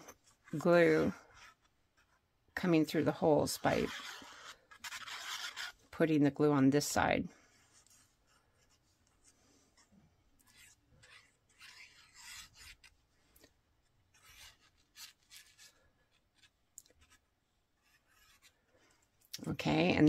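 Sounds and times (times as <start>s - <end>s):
pen tip scratching on cardstock: 2.9s - 5.8s, 9.8s - 13.0s, 14.1s - 17.2s, 17.8s - 18.6s.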